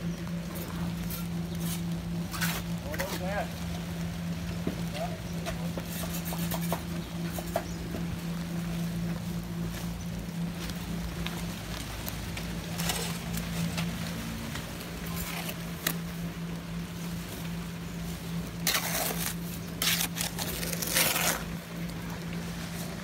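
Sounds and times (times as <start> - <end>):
light rain hiss: 0.0 - 23.0
steady low hum: 0.0 - 23.0
shovel scraping mortar in wheelbarrow: 0.5 - 3.4, 5.4 - 7.7, 12.7 - 13.8, 15.1 - 16.0, 18.6 - 21.6.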